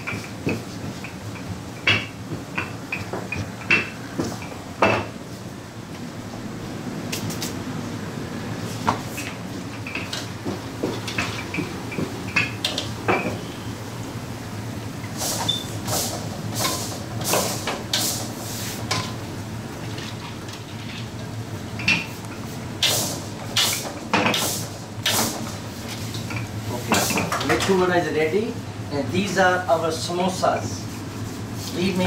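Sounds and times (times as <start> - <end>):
low kitchen hum: 0.0 - 32.0.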